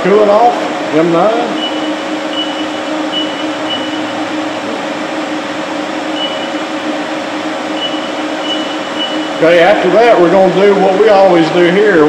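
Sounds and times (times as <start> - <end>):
machine shop hum: 0.0 - 12.0
keypad beeps: 7.8 - 9.4.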